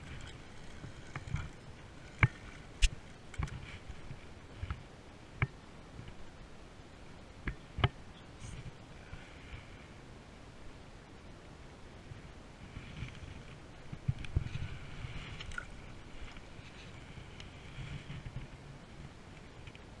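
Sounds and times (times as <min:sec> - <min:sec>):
low rustle: 0:00.0 - 0:05.2, 0:11.4 - 0:20.0.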